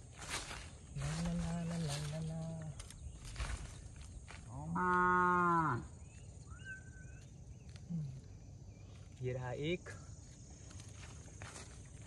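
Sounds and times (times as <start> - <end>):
digging in dry soil: 0.0 - 4.5
faint bird chirps: 0.9 - 4.7, 5.5 - 10.1.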